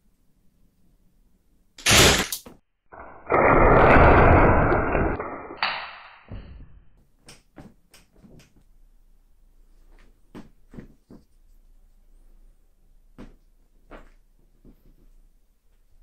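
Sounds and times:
crossbow bolt hitting: 1.8s - 2.5s.

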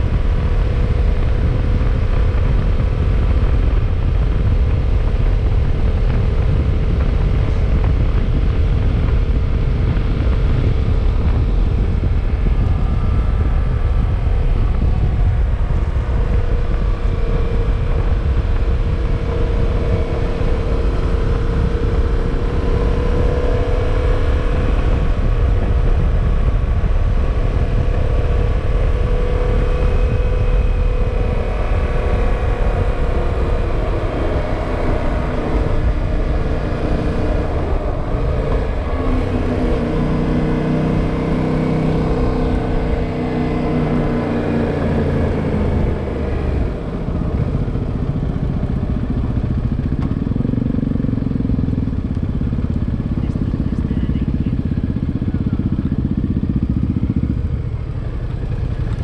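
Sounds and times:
motorcycle engine running: 0.0s - 59.0s
wind rumble on microphone: 0.0s - 59.0s.

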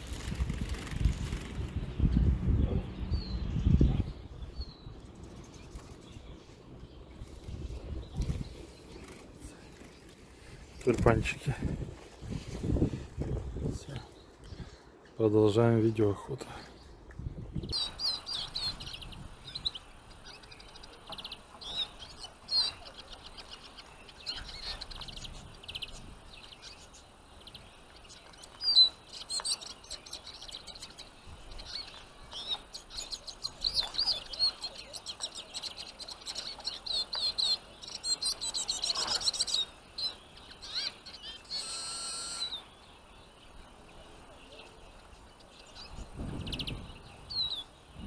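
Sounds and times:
small finches twittering: 17.6s - 48.0s.

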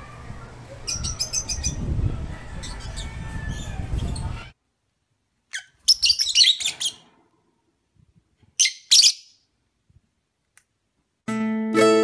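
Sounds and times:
budgerigars chirping: 5.5s - 7.0s.

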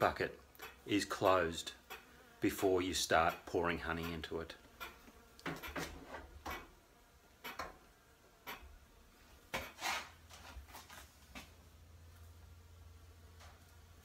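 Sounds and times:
low steady hum: 10.2s - 14.0s.

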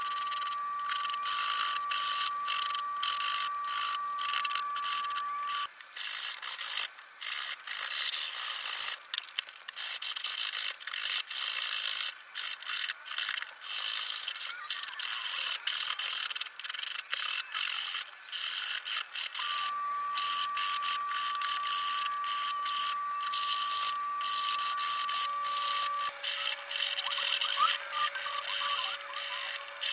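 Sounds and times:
steady high tone: 0.0s - 5.7s, 19.4s - 29.9s.

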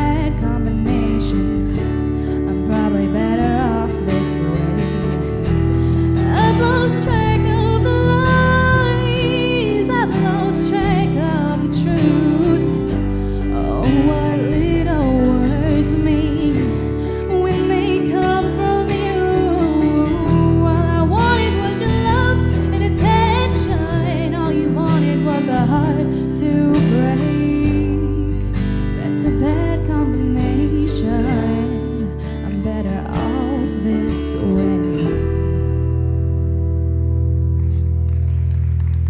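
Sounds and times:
woman singing: 0.0s - 35.7s
acoustic guitar strumming: 0.0s - 38.4s.

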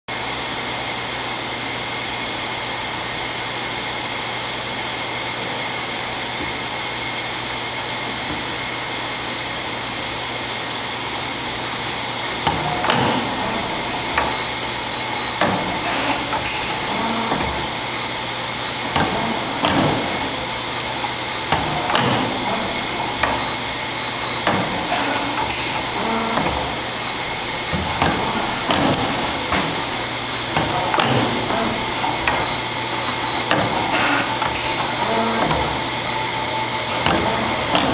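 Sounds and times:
high machine whines: 0.1s - 37.9s
machine humming: 0.1s - 37.9s
machine clacks and knocks: 12.4s - 14.4s, 18.8s - 23.6s, 27.6s - 35.8s, 36.8s - 37.9s.

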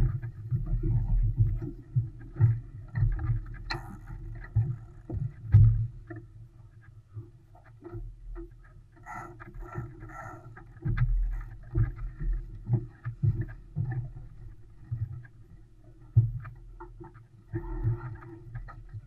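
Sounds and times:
water slapping against hull: 7.8s - 19.0s.

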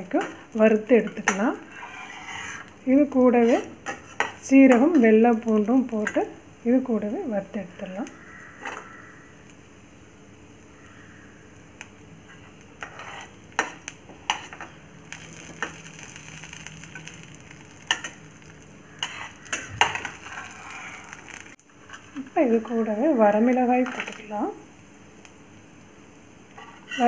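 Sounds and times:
low sizzle: 0.0s - 27.0s
ladle scraping and clinking in pan: 1.1s - 2.7s.

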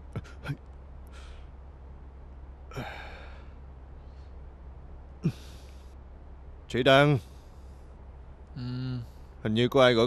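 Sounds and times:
low steady hum: 0.0s - 10.0s
man sighing: 2.7s - 3.6s, 5.2s - 5.9s, 8.5s - 9.2s.

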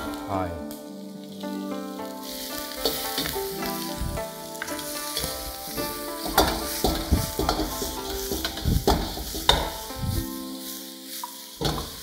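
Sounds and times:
food sizzling in a wok: 0.8s - 12.0s
metal ladle scraping wok: 4.8s - 9.9s
ladle clanking against wok: 6.2s - 9.8s, 11.6s - 12.0s.

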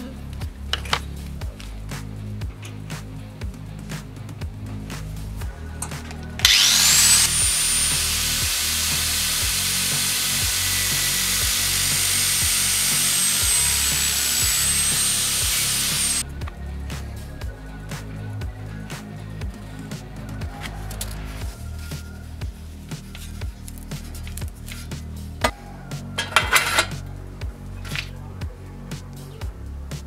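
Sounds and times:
angle grinder whining: 6.4s - 16.2s
disc grinding steel: 6.4s - 16.2s.

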